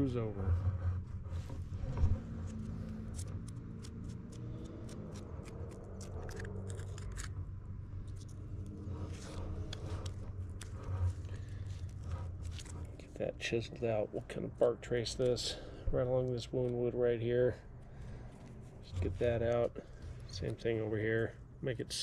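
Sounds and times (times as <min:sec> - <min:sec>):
faint low hum: 0:00.0 - 0:22.0
dry bark crackling and scraping: 0:00.7 - 0:07.4, 0:08.0 - 0:13.2, 0:17.9 - 0:20.9.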